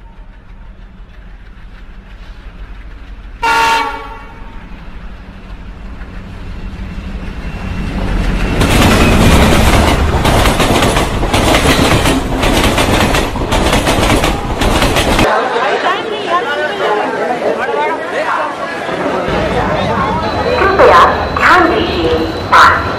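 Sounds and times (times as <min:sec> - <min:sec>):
train horn blast: 0:03.4 - 0:04.6
train clattering over rail joints: 0:08.0 - 0:15.3.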